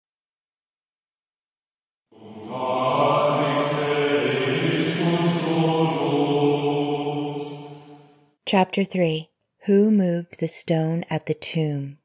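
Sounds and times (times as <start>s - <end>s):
chant-like drone music: 2.1s - 8.3s.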